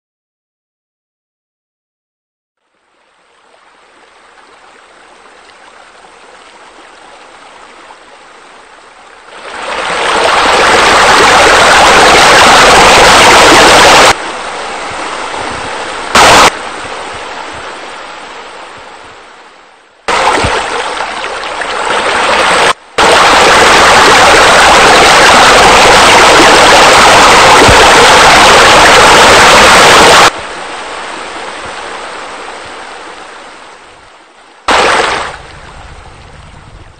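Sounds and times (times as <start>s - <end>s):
falling water splashing: 9.2s - 14.2s, 16.0s - 16.6s, 20.1s - 30.4s, 34.6s - 36.0s.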